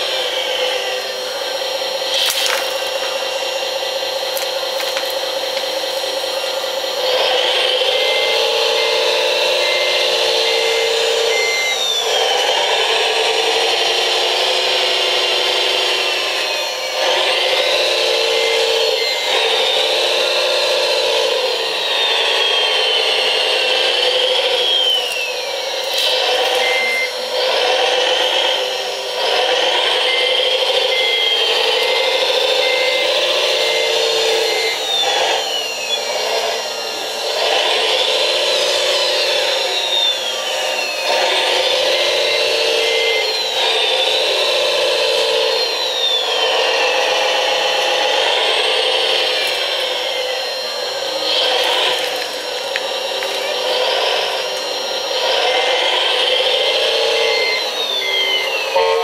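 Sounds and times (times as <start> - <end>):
electric motors and hydraulic pump whining: 0.0 - 59.0
reversing beeps: 7.8 - 12.1, 26.2 - 27.2, 29.8 - 35.1.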